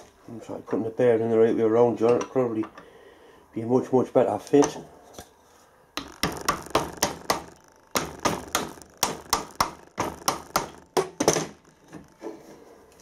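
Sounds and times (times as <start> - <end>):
hammer tapping on metal: 6.0 - 11.6.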